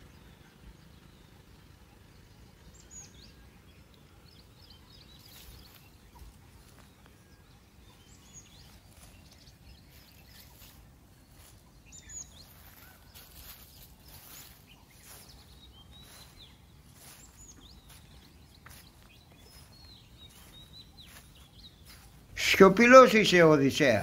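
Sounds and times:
small birds chirping: 0:00.0 - 0:24.0
soft brushing noises: 0:05.2 - 0:07.1, 0:08.4 - 0:22.4.

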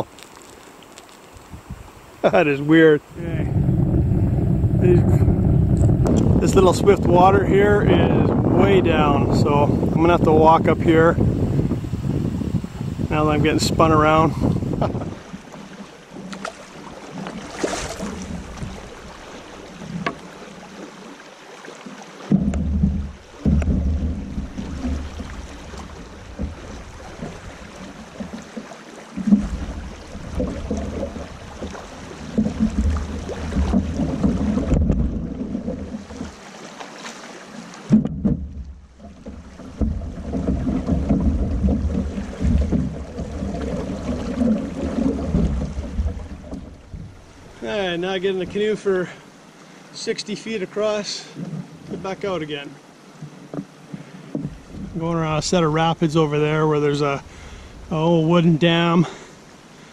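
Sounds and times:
water rushing over rocks: 0:00.0 - 0:59.9
wind buffeting microphone: 0:01.4 - 0:15.5, 0:17.0 - 0:20.2, 0:22.3 - 0:28.3, 0:29.2 - 0:36.3, 0:37.9 - 0:48.7
low rumble: 0:03.1 - 0:12.0, 0:22.3 - 0:26.8
river water rushing over rocks: 0:15.2 - 0:38.0.

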